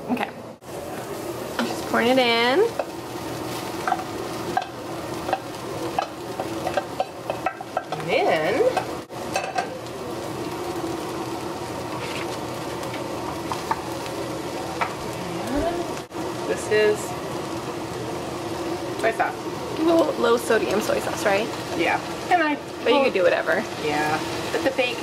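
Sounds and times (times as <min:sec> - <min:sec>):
food sizzling in a frying pan: 0:00.6 - 0:25.0
wooden spoon scraping a pan: 0:11.9 - 0:12.4.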